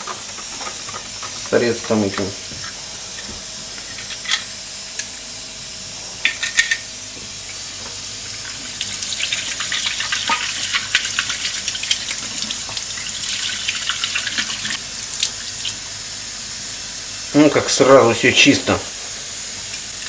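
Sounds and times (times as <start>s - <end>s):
tap water splashing: 8.8s - 15.4s.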